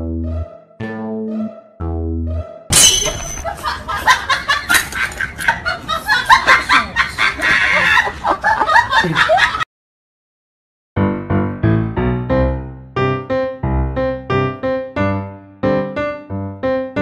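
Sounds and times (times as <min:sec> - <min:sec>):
people laughing in snickering bursts: 0:03.4 - 0:09.6.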